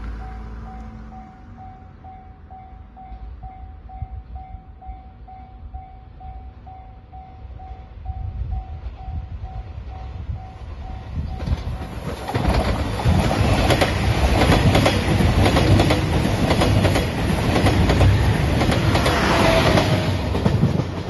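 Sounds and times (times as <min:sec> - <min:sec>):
train wheels clicking over rail joints: 0:11.3 - 0:21.0.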